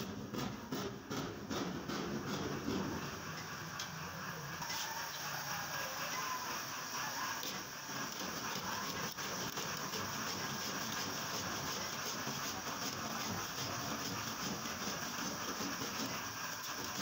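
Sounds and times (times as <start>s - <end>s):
hand saw cutting panel: 0.0s - 2.9s.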